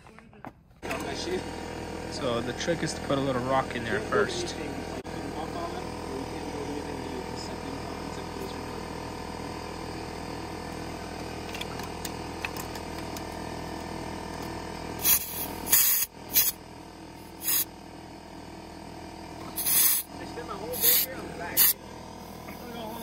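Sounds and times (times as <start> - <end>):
steady hum: 0.8 - 23.0
air hose hissing: 15.0 - 16.6, 17.2 - 17.7, 19.5 - 20.1, 20.7 - 21.8.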